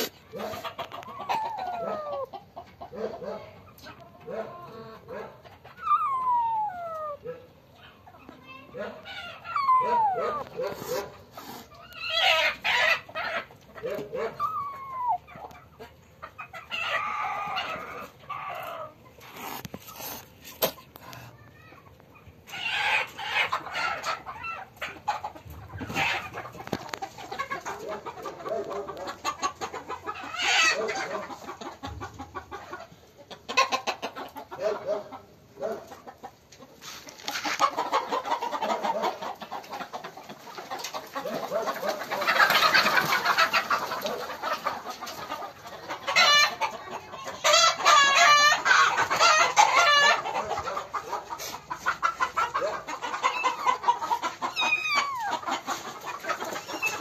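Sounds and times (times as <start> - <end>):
chickens clucking: 0.0 - 57.0
kitten meowing and hissing: 5.8 - 7.2, 9.5 - 10.9, 14.4 - 15.2.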